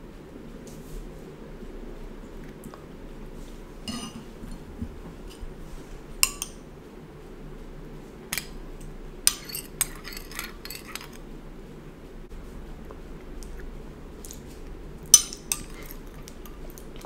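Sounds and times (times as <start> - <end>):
spoon clinking in teacup: 3.9 - 4.2.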